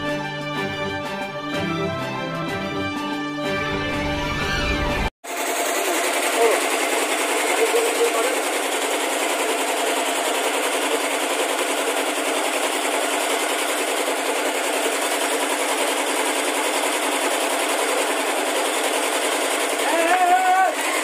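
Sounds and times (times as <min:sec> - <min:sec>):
machine rattling steadily: 0:05.2 - 0:21.0.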